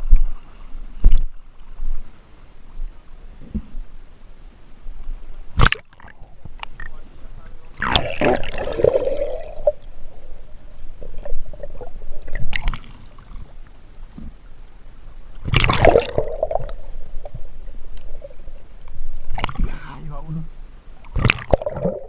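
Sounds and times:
muffled underwater gurgling: 6.1s - 13.6s.

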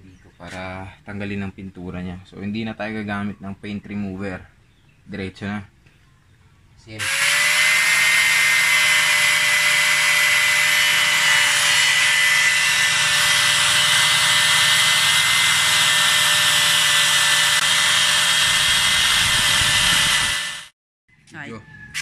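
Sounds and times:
angle grinder whining: 7.0s - 20.8s.

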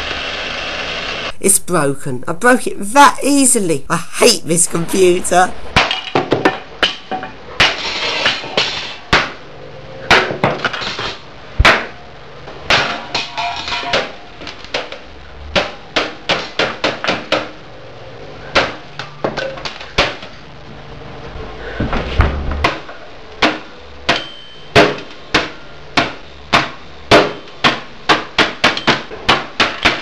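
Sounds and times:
hammer striking computer case: 11.6s - 12.0s, 15.5s - 17.6s, 22.3s - 30.0s.

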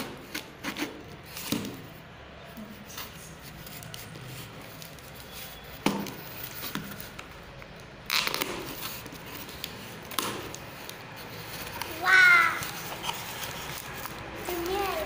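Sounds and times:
packing tape scraping and ripping: 0.0s - 2.0s, 2.6s - 15.0s
tape rasping tear: 3.0s - 15.0s.

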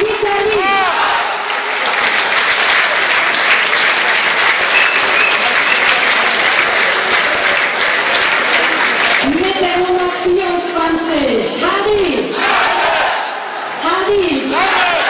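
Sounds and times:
crowd applauding: 0.0s - 10.0s.

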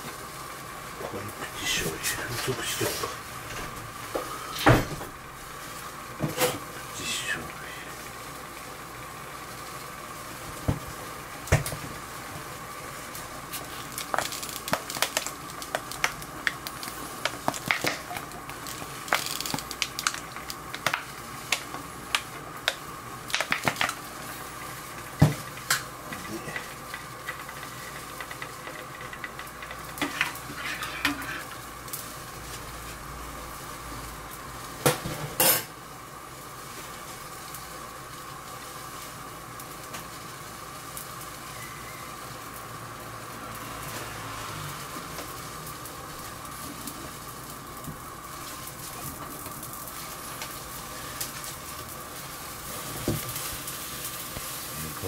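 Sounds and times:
metal utensils clinking on pans: 35.2s - 35.7s.

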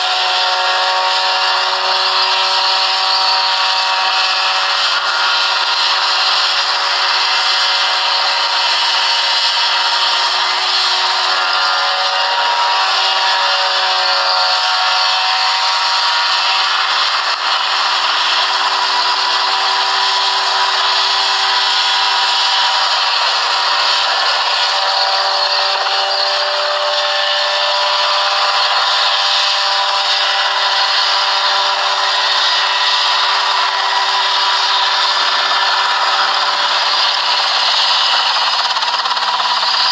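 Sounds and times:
helicopter engine and rotor: 0.0s - 39.9s.

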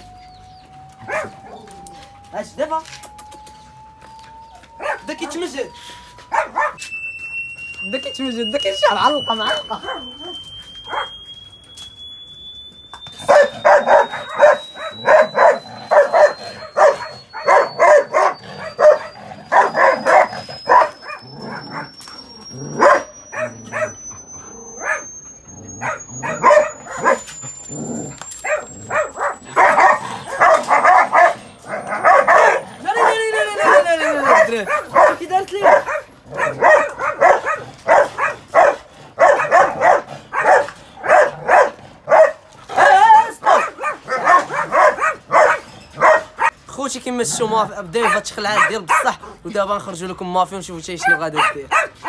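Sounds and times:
rising test tone: 0.0s - 37.2s
dogs barking: 1.0s - 1.8s, 4.7s - 6.8s, 8.7s - 11.2s, 13.2s - 46.6s, 47.3s - 49.4s, 50.9s - 52.0s.

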